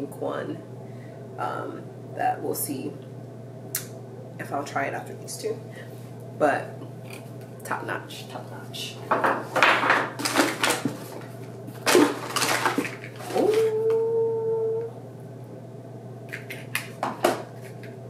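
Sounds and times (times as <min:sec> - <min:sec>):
packaging crinkling: 0:10.2 - 0:13.7.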